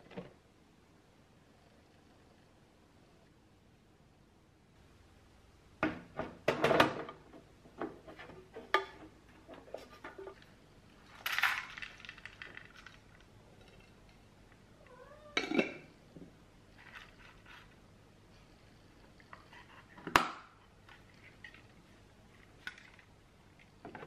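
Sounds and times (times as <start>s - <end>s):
nuts rattling into plastic dispenser: 11.1s - 13.9s
cat meowing: 14.8s - 15.6s.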